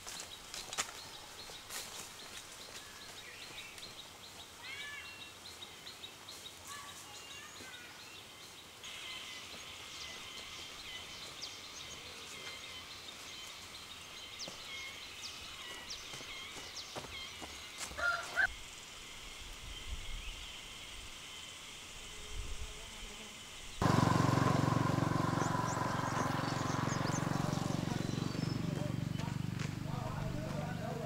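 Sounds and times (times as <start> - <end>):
small birds chirping: 0.0 - 18.5, 23.5 - 31.0
insect buzz with clicks: 17.5 - 23.8.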